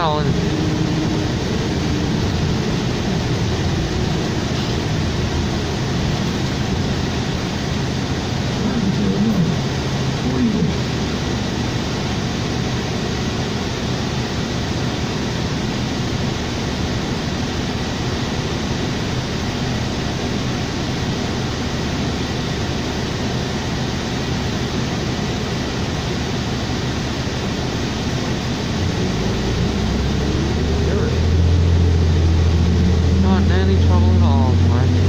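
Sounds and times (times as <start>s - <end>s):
bus engine running: 0.0s - 35.0s
ventilation hiss: 0.0s - 35.0s.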